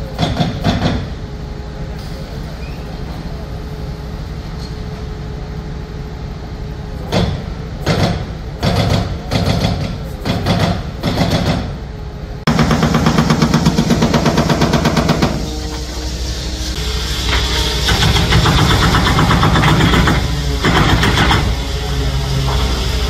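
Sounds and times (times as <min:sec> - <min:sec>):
hydraulic breaker hammering concrete: 0:07.1 - 0:11.8, 0:12.5 - 0:15.4, 0:17.3 - 0:21.6
diesel engine running: 0:11.8 - 0:23.0.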